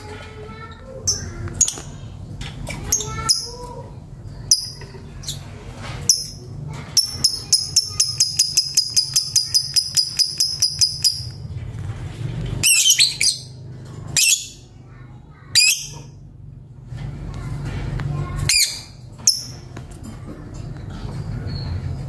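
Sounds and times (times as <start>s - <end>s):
bird high chirps: 7.0s - 11.4s.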